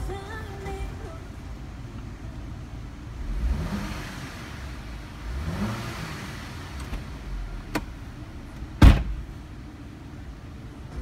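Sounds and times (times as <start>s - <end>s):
car engine revving: 2.0s - 11.0s
car door shutting: 6.8s - 9.3s.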